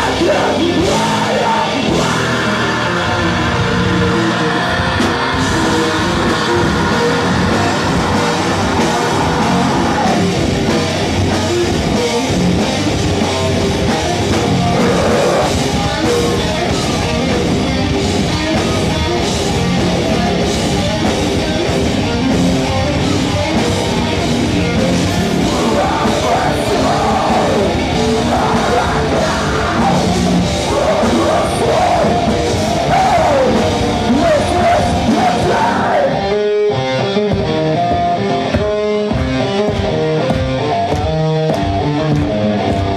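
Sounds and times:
metal band playing: 0.0 - 42.9
person yelling vocals: 25.4 - 36.2.

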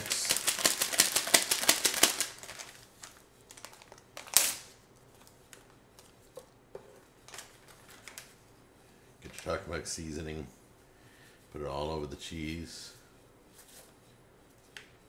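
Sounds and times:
paper packet crinkling: 0.0 - 6.2, 7.3 - 8.4.

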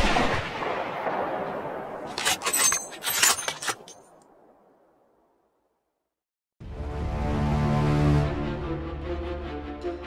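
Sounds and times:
sharp clicks and clinks: 2.1 - 4.0.

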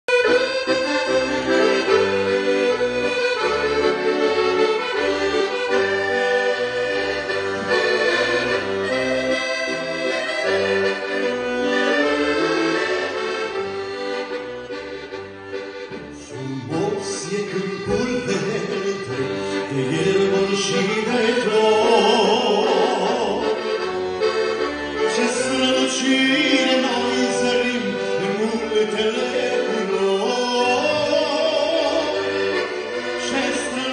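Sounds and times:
accordion playing melody: 0.0 - 33.9
man singing with vibrato: 16.0 - 33.9.

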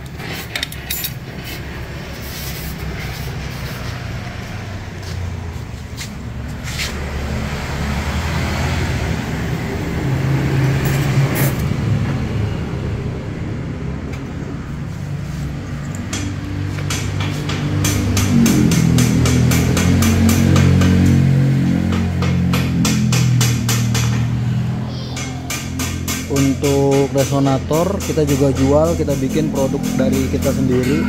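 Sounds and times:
vehicle engine rumbling: 0.0 - 31.0
sharp clicks and knocks: 15.8 - 21.2, 21.8 - 24.5, 25.1 - 30.6.

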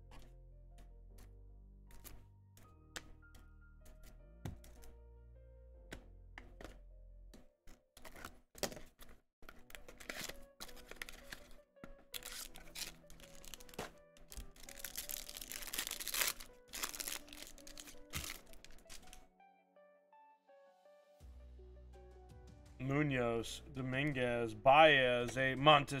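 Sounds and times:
packaging clicks: 7.7 - 19.2
packaging ripping and crackling: 9.5 - 19.2.

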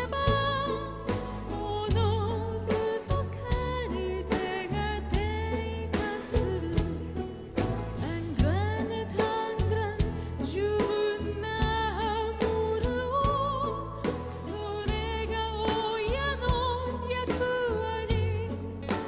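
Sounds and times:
bass guitar: 0.0 - 19.0
woman singing with vibrato: 0.0 - 19.0.

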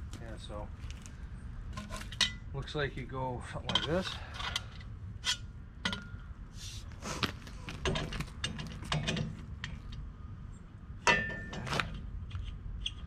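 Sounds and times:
ringing metal clank: 5.3 - 6.3, 11.0 - 11.7.

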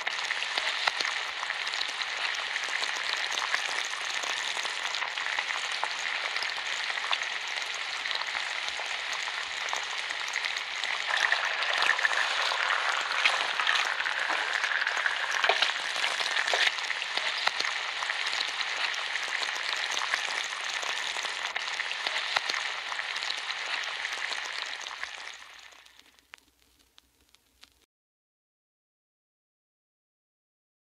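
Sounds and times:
bacon sizzling in a pan: 0.0 - 27.9
sharp crackling pops: 9.5 - 19.0, 24.9 - 27.9.

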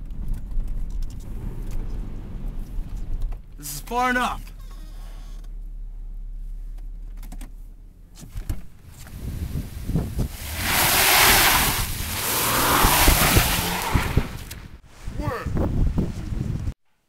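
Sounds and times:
wind rushing across microphone: 8.4 - 16.8.

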